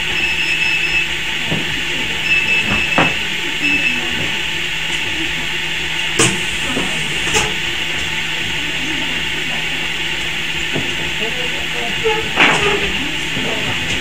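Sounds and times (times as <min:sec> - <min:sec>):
soldering machine hiss and hum: 0:06.2 - 0:08.0.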